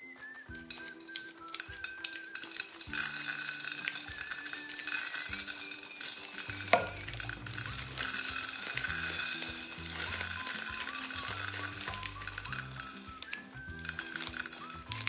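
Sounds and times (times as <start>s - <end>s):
background music with held notes: 0.0s - 15.0s.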